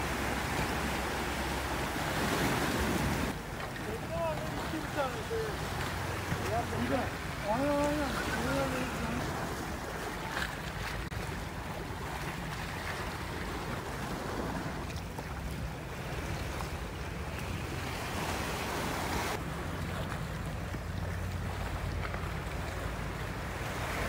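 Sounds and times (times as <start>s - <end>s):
sea waves splashing over rocks: 0.0s - 24.0s.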